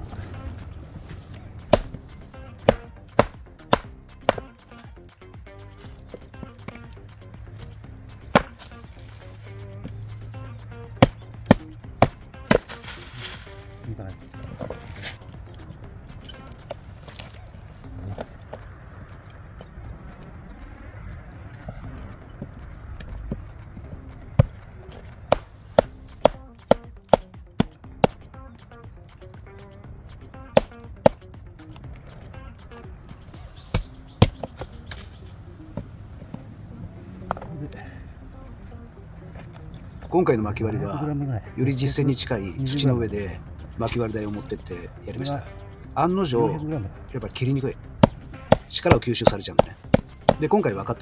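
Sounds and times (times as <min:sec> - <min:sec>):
knife chopping firewood: 0:01.1 - 0:04.9, 0:08.1 - 0:09.5, 0:10.9 - 0:13.4, 0:16.5 - 0:17.4, 0:24.3 - 0:28.3, 0:30.4 - 0:31.2, 0:33.4 - 0:35.3, 0:47.9 - 0:50.5.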